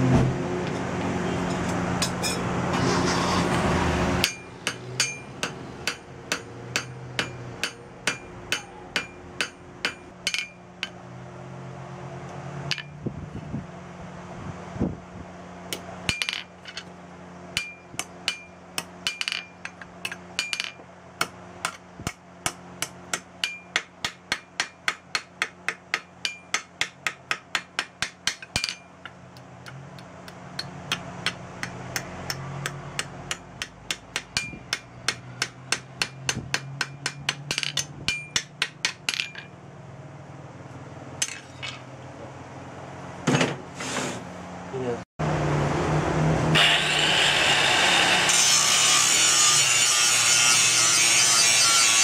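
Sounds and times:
hammer striking metal and anvil: 0:01.6 - 0:02.5, 0:04.2 - 0:11.0, 0:12.7 - 0:13.0, 0:15.7 - 0:16.9, 0:17.6 - 0:39.6, 0:41.2 - 0:41.8.

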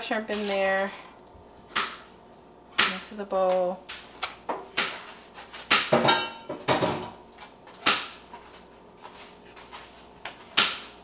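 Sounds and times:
dishes knocking and clattering: 0:05.7 - 0:07.2.

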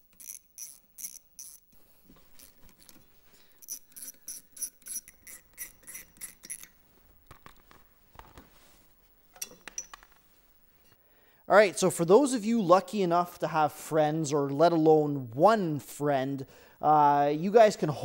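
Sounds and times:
ratchet clicking: 0:00.0 - 0:01.6, 0:03.6 - 0:06.7
metal tools clinking: 0:09.4 - 0:10.1.

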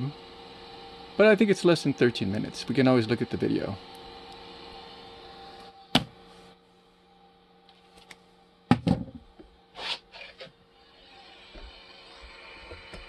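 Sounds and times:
printer humming: 0:00.0 - 0:08.7.

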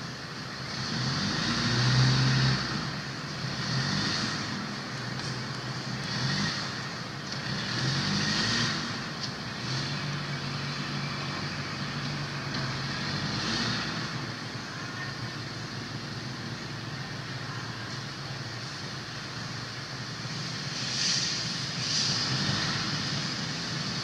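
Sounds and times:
vehicle engine running: 0:00.0 - 0:24.0
high hiss: 0:20.2 - 0:24.0.

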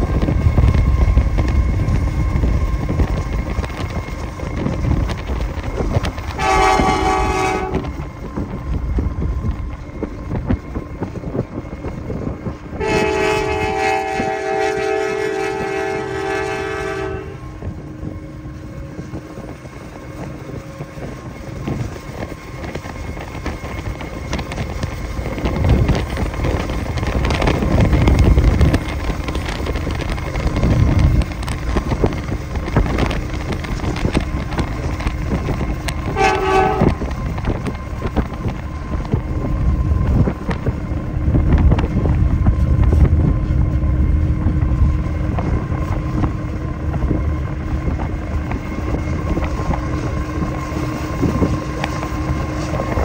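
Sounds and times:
diesel locomotive rumbling: 0:00.0 - 0:53.0
wind noise: 0:00.0 - 0:53.0
train horn: 0:06.3 - 0:08.1, 0:12.7 - 0:17.7, 0:35.8 - 0:37.4.

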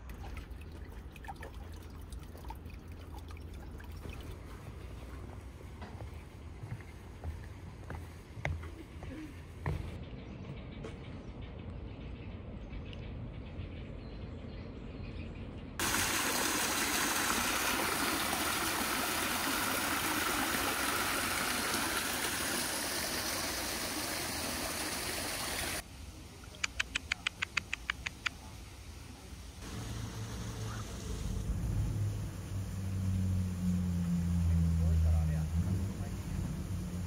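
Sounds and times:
faint outdoor background: 0:00.0 - 0:37.0
waterfall splashing over rocks: 0:15.8 - 0:25.8.

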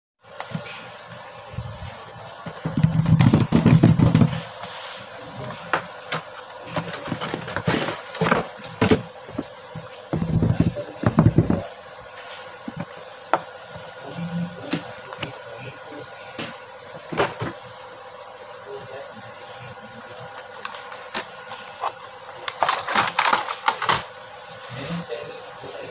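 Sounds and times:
hands handling cardboard and plastic: 0:00.3 - 0:11.7, 0:20.2 - 0:24.1.

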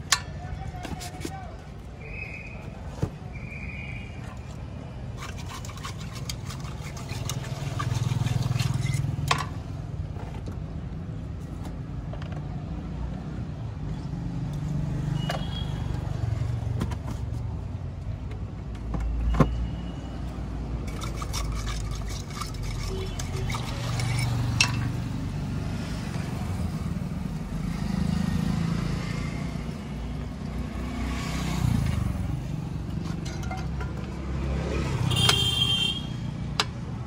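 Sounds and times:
road traffic: 0:00.0 - 0:37.0.

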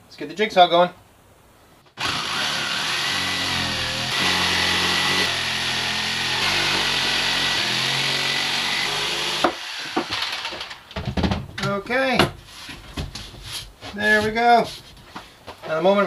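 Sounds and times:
jigsaw cutting wood: 0:02.0 - 0:10.8.

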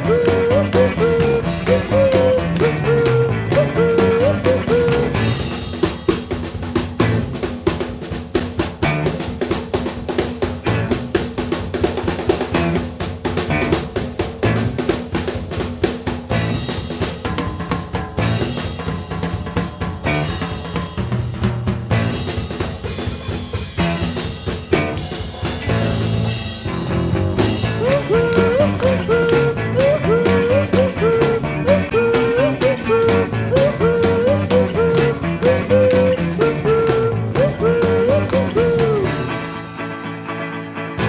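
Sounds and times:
lead melody with sliding notes: 0:00.0 - 0:05.5, 0:27.4 - 0:39.7
bass line: 0:00.0 - 0:05.6, 0:25.6 - 0:39.5
drum-kit beat: 0:00.0 - 0:39.5.

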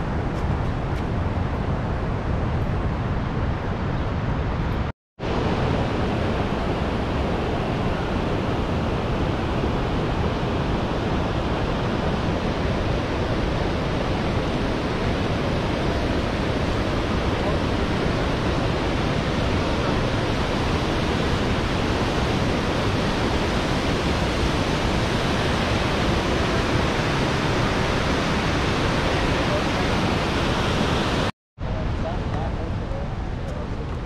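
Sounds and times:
river rapids rushing: 0:05.3 - 0:31.3.

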